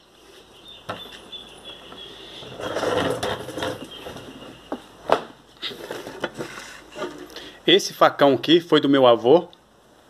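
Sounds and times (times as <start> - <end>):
rustling handling noise: 0.4 - 7.5.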